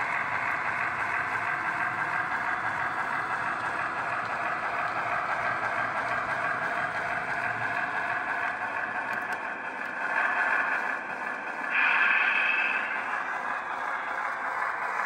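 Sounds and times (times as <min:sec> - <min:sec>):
model train wheels rolling on track: 0:00.0 - 0:15.0.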